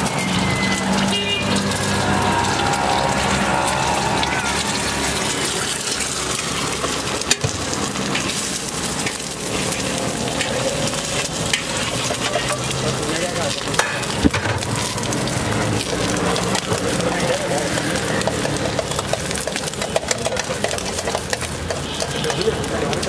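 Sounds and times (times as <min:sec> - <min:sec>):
egg sizzling on griddle: 0:00.0 - 0:23.0
metal spatula clicking on griddle: 0:06.0 - 0:12.9, 0:16.0 - 0:23.0.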